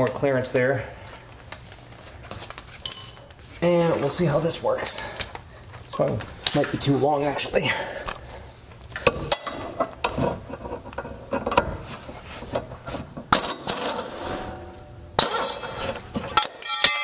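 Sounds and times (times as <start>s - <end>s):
metallic clinks and rattles: 2.8s - 3.4s, 15.3s - 17.0s.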